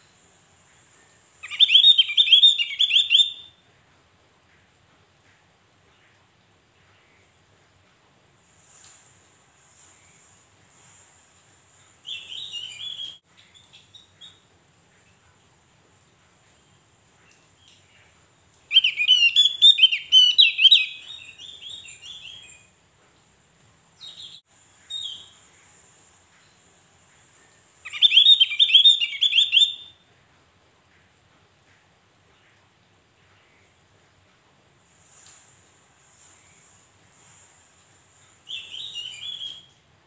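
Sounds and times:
bird singing rapid high chirps: 1.4 - 3.5, 18.7 - 22.5, 27.8 - 29.9.

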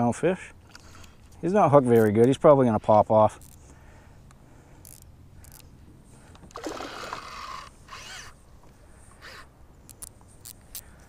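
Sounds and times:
fishing reel drag buzzing: 4.8 - 5.7, 6.5 - 8.4, 9.1 - 10.9.

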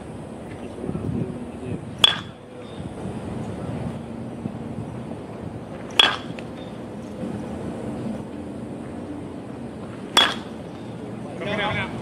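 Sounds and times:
bat striking ball: 2.0 - 2.4, 5.8 - 6.8, 10.1 - 10.7.

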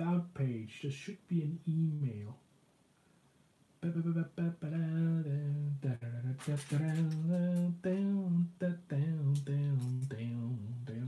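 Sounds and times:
plastic toy bricks clicking: 6.4 - 7.7.

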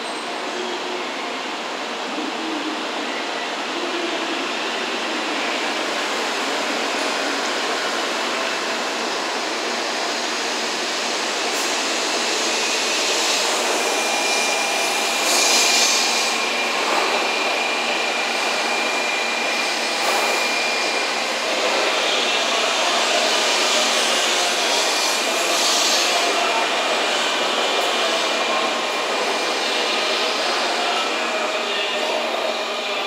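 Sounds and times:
train running noise: 0.0 - 33.0
hiss: 9.4 - 17.6, 21.4 - 31.0.

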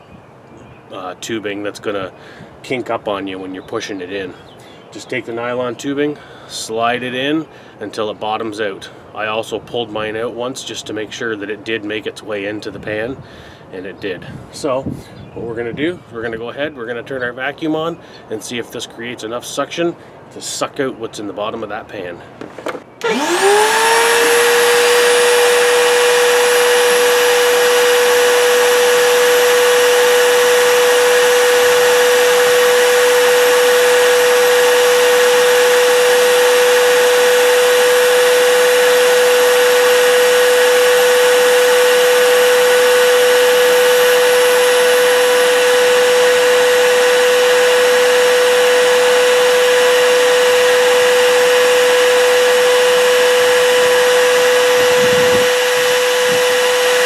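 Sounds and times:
shop vac motor whine: 22.4 - 57.0.

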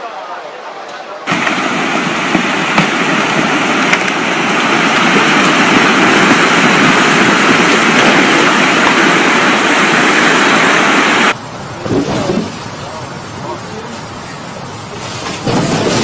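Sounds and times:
muddy water rushing and churning: 1.3 - 11.4.

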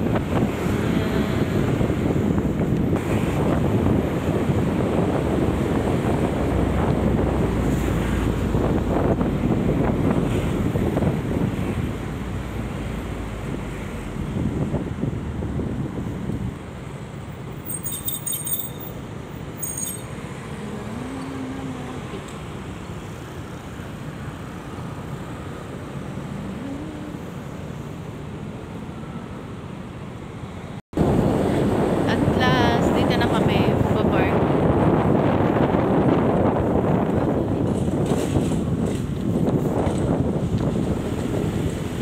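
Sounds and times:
wind rumbling on microphone: 0.0 - 29.2, 30.9 - 42.0
scooter engine and road noise: 0.0 - 42.0
street traffic passing: 0.0 - 42.0.

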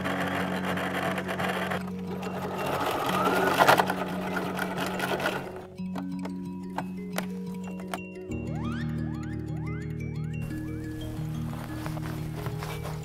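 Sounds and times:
sewing machine stitching: 0.0 - 5.7
background music: 0.0 - 13.0.

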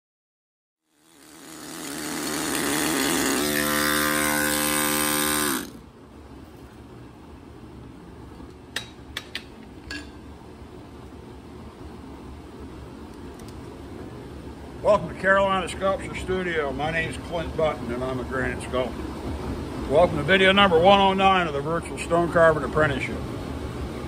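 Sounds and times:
low shop hum: 0.8 - 24.0
pneumatic carving tool rattling buzz: 0.9 - 5.8.

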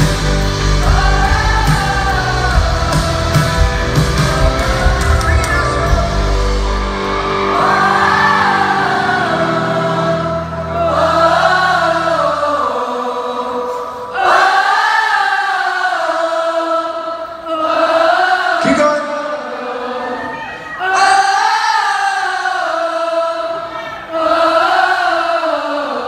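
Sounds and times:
crowd cheering and screaming: 0.0 - 11.6, 19.7 - 21.9.

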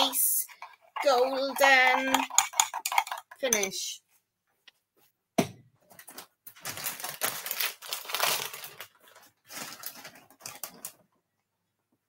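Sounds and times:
plastic packet crinkling: 5.9 - 11.1.

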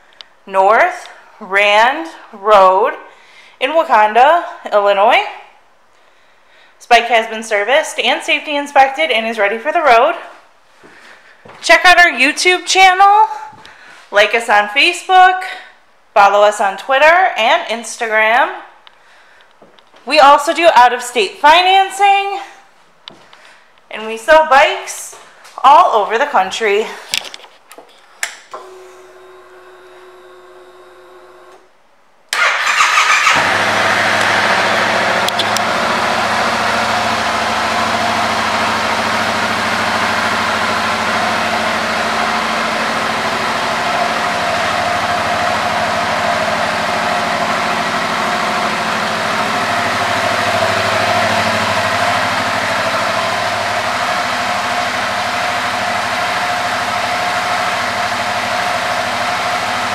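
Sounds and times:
motorcycle engine starting and idling: 32.3 - 59.9.

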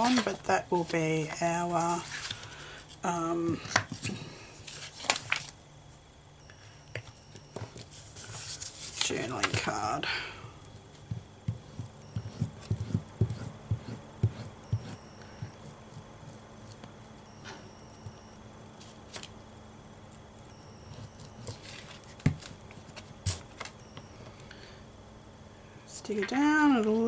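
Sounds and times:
glue stick rubbing on card: 11.6 - 15.0.

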